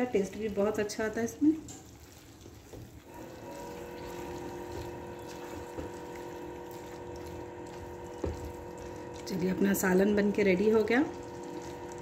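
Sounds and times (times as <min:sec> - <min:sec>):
spatula stirring curry in pan: 0:01.6 - 0:12.0
motor humming: 0:03.1 - 0:12.0.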